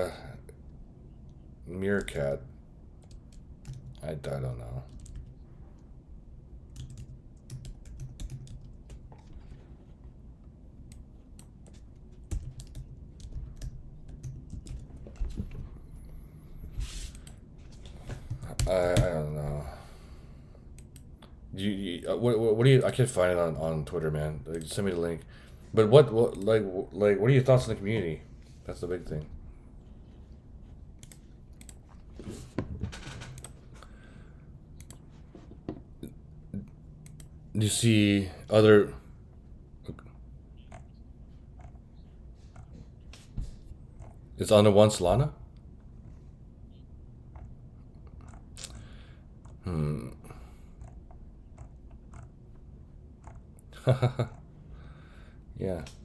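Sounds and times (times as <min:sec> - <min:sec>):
computer keyboard and mouse clicks: 0:06.7 - 0:09.4, 0:10.9 - 0:15.4, 0:31.0 - 0:31.9, 0:33.2 - 0:33.6, 0:40.6 - 0:41.0, 0:48.1 - 0:48.8, 0:50.8 - 0:52.4, 0:53.2 - 0:53.4.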